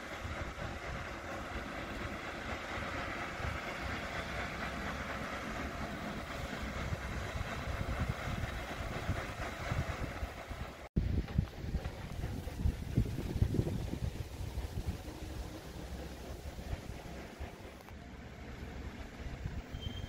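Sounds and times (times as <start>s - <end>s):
paddlewheel churning water: 0.0s - 19.9s
wind on microphone: 6.7s - 17.7s.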